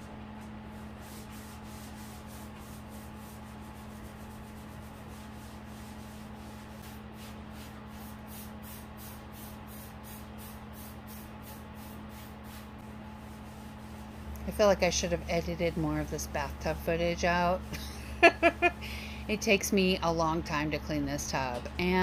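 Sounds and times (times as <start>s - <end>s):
steady low hum: 0.0s - 22.0s
scrubber rubbing on bathtub: 0.8s - 8.3s, 12.8s - 18.8s.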